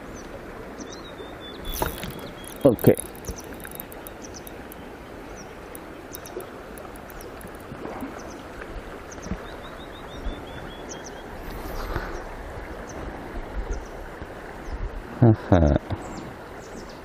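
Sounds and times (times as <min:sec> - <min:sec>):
stream running over stones: 0:00.0 - 0:17.0
small high chirps: 0:01.6 - 0:04.9, 0:05.7 - 0:07.7
faint high ticks: 0:01.7 - 0:04.9, 0:05.6 - 0:07.8.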